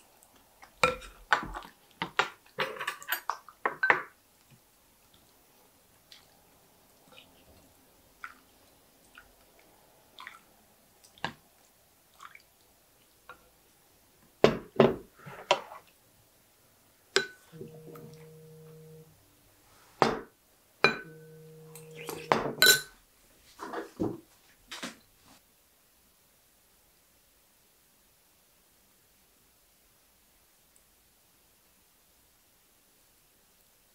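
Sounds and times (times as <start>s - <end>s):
dishes and utensils clinking: 0.8s - 4.1s, 17.2s - 19.1s, 20.0s - 23.0s
steady low hum: 17.2s - 19.3s, 20.8s - 22.3s.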